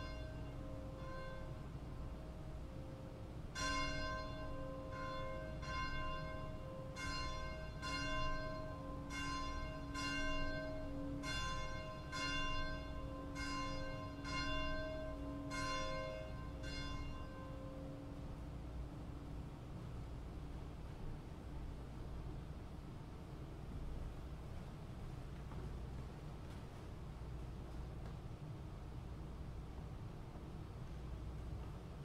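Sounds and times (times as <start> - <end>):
church bell tolling: 0.0 - 18.4.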